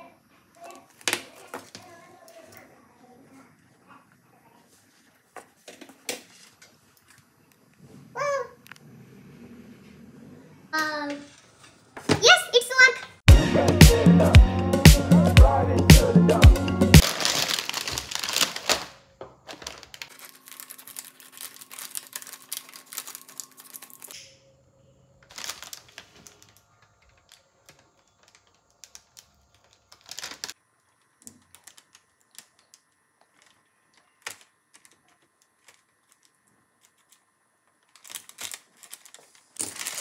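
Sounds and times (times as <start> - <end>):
plastic crisp packet crinkling: 17.0 - 24.2, 25.2 - 40.0.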